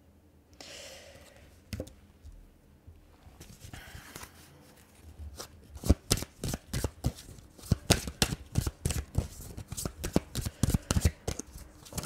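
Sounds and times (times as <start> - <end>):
cards being shuffled: 3.4 - 12.0.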